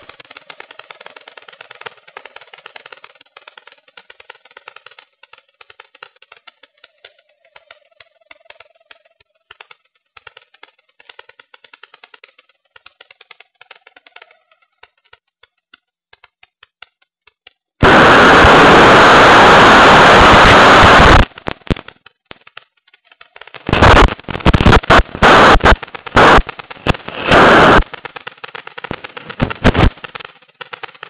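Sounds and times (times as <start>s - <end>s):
rapid irregular clicking: 0.0s - 31.0s
faint steady whine: 17.8s - 31.0s.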